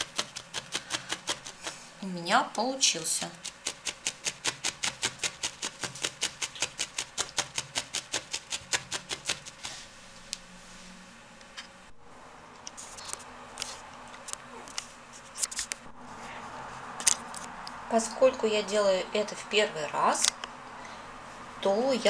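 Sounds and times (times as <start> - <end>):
felting needle stabbing into foam: 0.0 - 1.8, 3.3 - 9.8.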